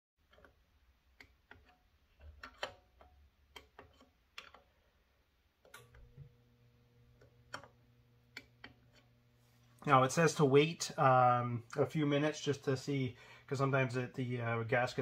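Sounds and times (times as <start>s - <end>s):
faint low hum: 0.3s - 15.0s.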